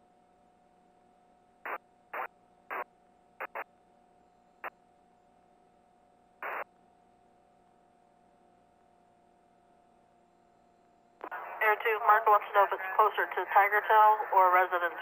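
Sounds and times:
faint hum and tone: 0.0 - 15.0
radio static bursts: 1.7 - 2.8, 3.4 - 3.6, 6.4 - 6.6.

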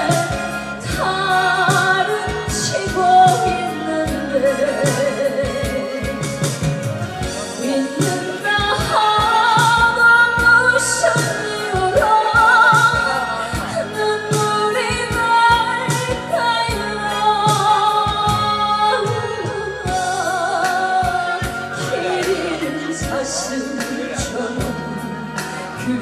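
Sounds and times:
backing band with drum beat: 0.0 - 26.0
woman singing with vibrato: 0.0 - 26.0.

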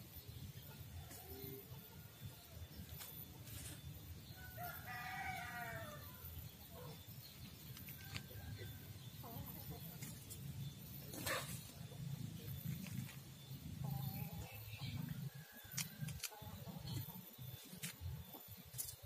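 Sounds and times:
rooster crowing: 4.4 - 6.3.

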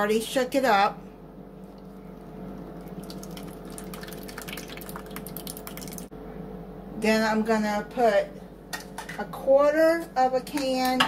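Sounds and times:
milk pouring into cup: 1.6 - 6.1.

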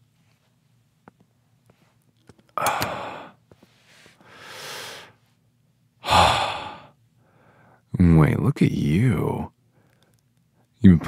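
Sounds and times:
man sighing heavily: 2.6 - 3.4, 6.0 - 7.6.

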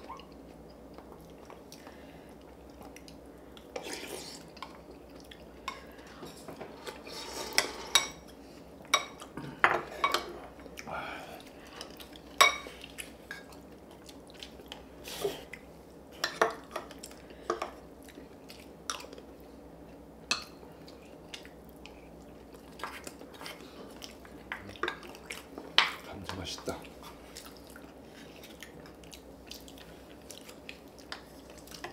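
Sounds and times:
cutlery clinking against plates: 8.9 - 10.5.

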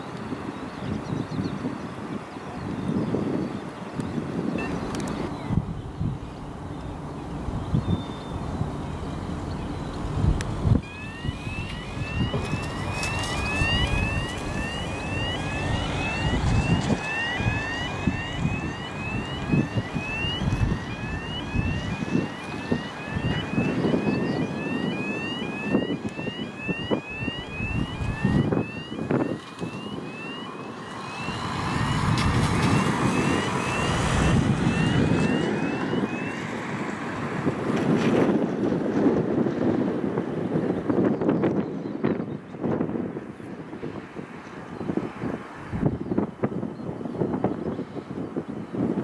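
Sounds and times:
wind on microphone: 0.0 - 49.0
jet engines rumbling: 3.6 - 38.9
thin rising whistle: 7.5 - 10.0, 10.7 - 36.4.

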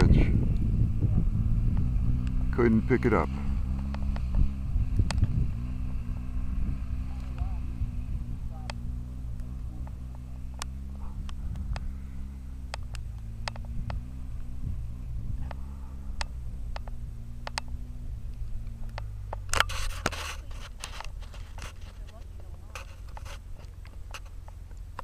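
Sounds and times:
low engine hum: 0.0 - 25.0
rustling and scraping: 1.7 - 25.0
sharp clicks: 12.6 - 14.5, 15.4 - 20.2.

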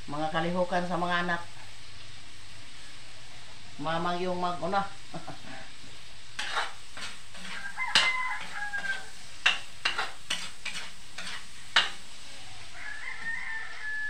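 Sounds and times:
food sizzling: 0.0 - 14.0
metal ladle scraping wok: 6.4 - 12.6
rooster crowing: 7.4 - 9.3, 12.5 - 14.0.

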